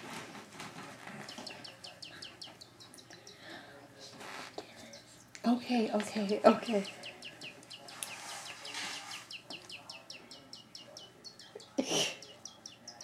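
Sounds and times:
high bird-like chirps: 6.6s - 13.0s.

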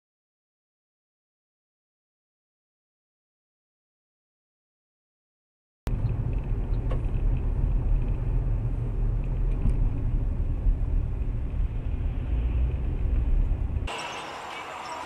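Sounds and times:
car engine and road noise: 5.9s - 15.0s.

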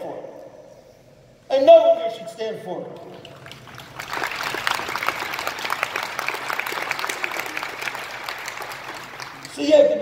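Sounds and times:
audience applause: 3.3s - 9.6s.

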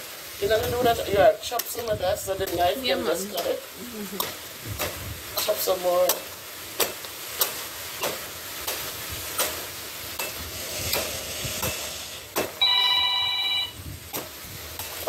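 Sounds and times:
machete chopping coconuts: 6.0s - 8.8s, 12.3s - 12.6s, 14.1s - 14.3s
mobile phone ringing: 12.6s - 13.8s.

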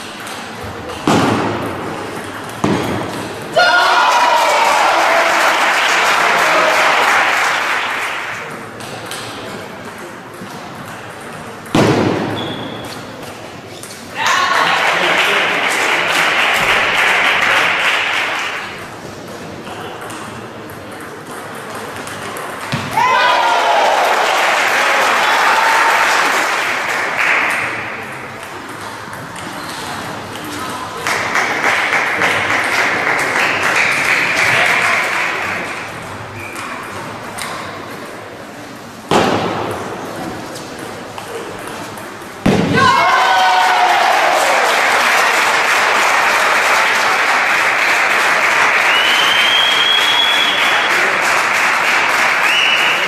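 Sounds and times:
spectators applauding: 3.8s - 8.5s, 14.5s - 18.8s, 23.2s - 27.9s, 31.0s - 35.7s, 43.3s - 53.0s.

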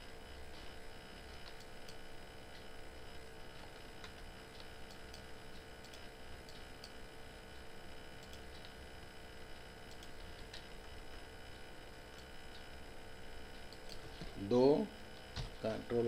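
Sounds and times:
steady background hum: 0.0s - 16.0s
computer mouse clicks: 4.0s - 7.0s, 8.2s - 8.8s, 9.9s - 10.7s, 13.7s - 14.0s.

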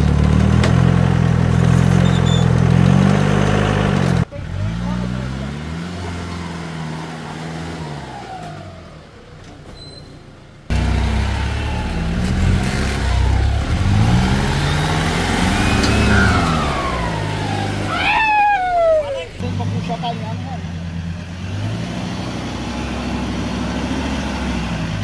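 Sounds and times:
engine revving under load: 0.0s - 9.4s, 10.7s - 25.0s
falling whistle-like tone: 14.6s - 19.2s.

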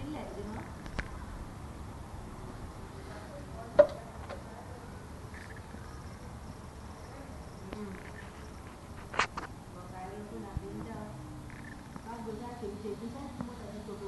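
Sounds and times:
insects buzzing: 4.8s - 9.6s, 11.1s - 14.0s.

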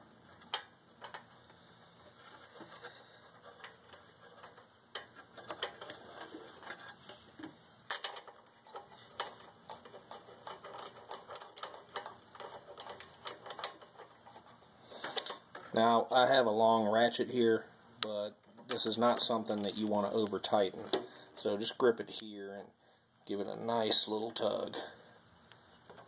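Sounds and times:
small metallic clicks: 2.4s - 15.8s.

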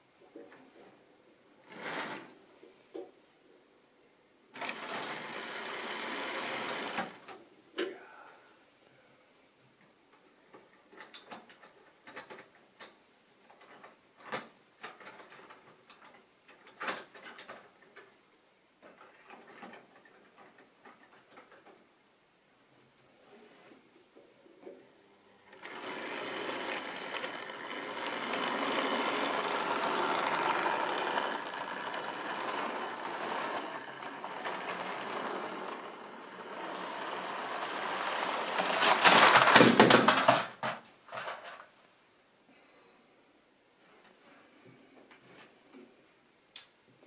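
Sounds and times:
model train running on track: 4.6s - 7.1s, 25.6s - 39.5s.

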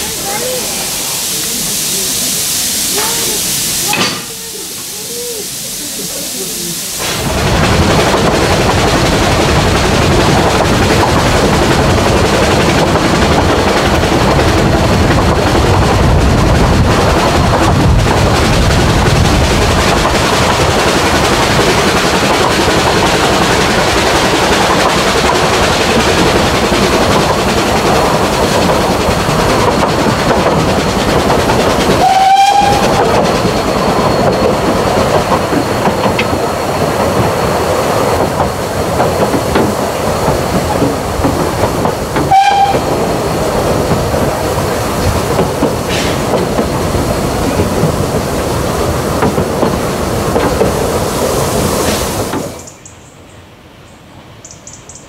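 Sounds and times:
steam train whistle toots: 0.9s - 5.8s, 32.0s - 33.2s, 42.3s - 42.9s
train wheels clattering on rails: 3.0s - 4.9s, 7.0s - 53.0s.

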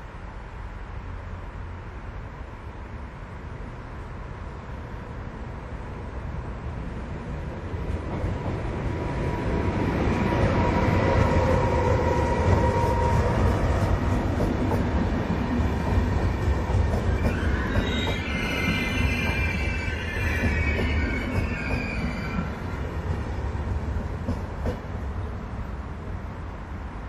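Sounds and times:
train rumble: 0.0s - 27.0s
locomotive whine: 9.0s - 24.6s
wheel squeal: 17.0s - 22.6s.

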